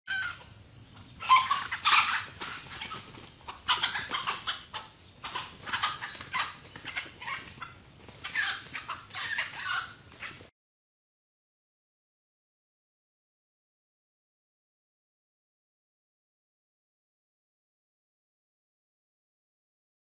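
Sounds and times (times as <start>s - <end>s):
junglefowl clucking and squawking: 0.1s - 10.5s.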